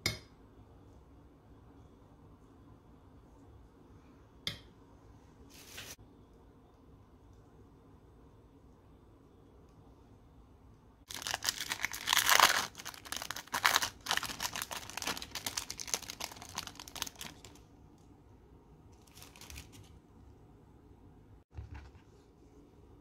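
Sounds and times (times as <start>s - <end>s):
plastic wrapper crinkling: 11.1s - 17.6s, 19.0s - 20.0s.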